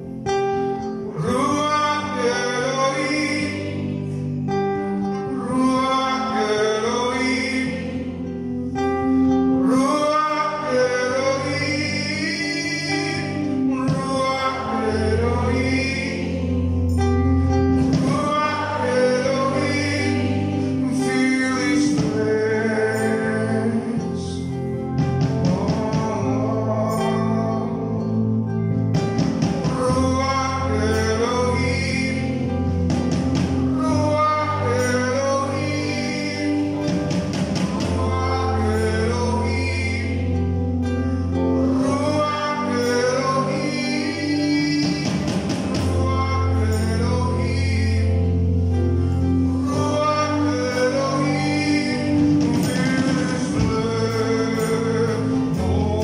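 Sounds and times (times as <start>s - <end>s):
band accompaniment with bass: 0.0s - 56.0s
man singing lead: 0.0s - 56.0s
nylon-string acoustic guitar: 0.0s - 56.0s.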